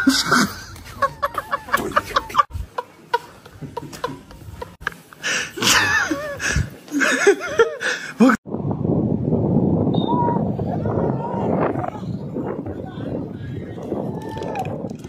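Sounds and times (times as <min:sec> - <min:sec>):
man laughing heartily: 0:00.0 - 0:08.4.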